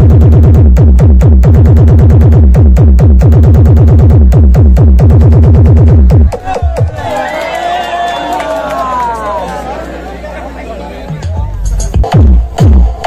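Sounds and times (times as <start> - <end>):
bass-heavy electronic music: 0.0 - 7.3, 10.9 - 13.0.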